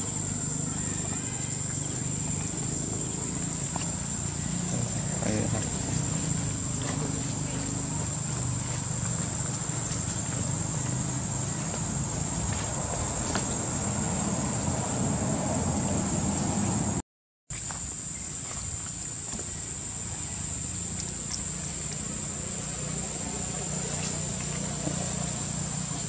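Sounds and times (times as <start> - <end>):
insects trilling: 0.0 - 26.0
faint outdoor hiss: 17.5 - 26.0.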